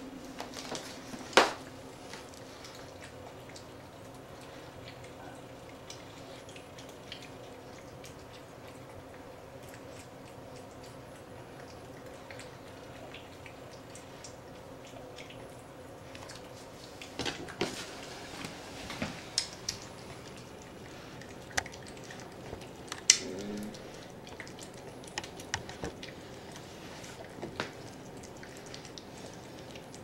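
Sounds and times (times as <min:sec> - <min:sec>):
cat eating wet food: 0:00.0 - 0:30.0.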